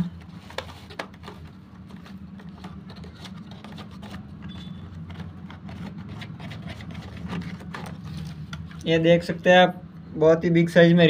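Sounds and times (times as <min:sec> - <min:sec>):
cardboard scraping: 0:00.1 - 0:08.5.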